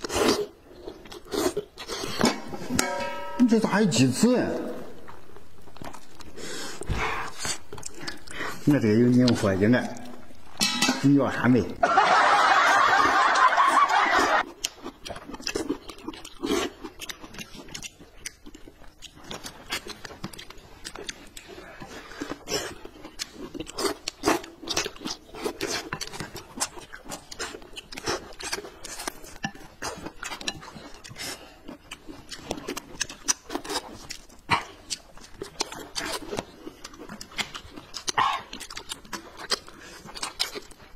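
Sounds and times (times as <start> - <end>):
chewing and lip-smacking: 0.0 - 2.3, 5.0 - 10.6, 13.0 - 40.9.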